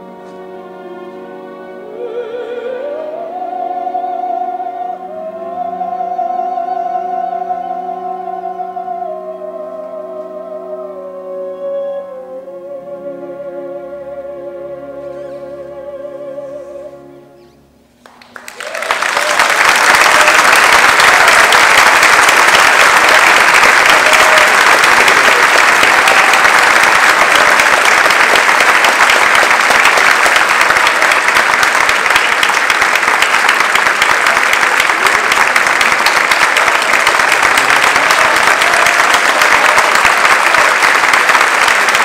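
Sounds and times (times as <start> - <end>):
audience applauding: 18.0 - 42.0.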